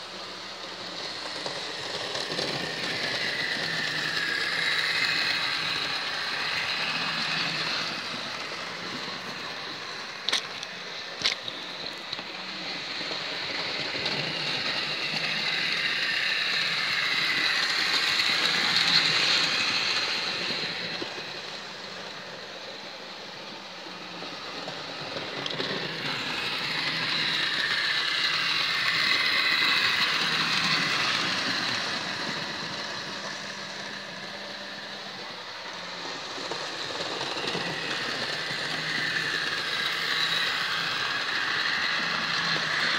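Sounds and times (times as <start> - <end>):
model train motor whirring: 0.0 - 42.9.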